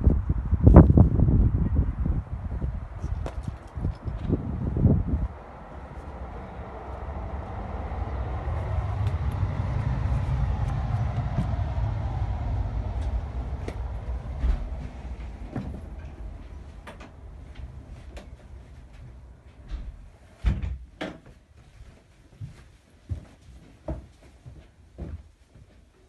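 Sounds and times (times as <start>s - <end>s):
passing vehicle rumble: 0.0s - 20.3s.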